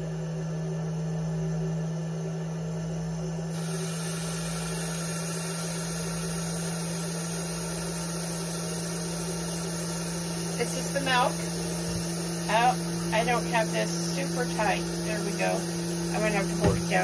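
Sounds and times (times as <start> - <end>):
motor hum: 0.0 - 17.0
steady hiss of flowing milk: 3.6 - 17.0.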